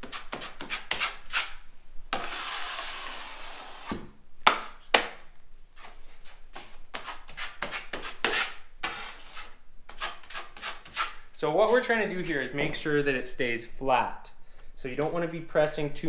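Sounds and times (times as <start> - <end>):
drywall knife scraping: 0.0 - 4.1, 6.6 - 12.2.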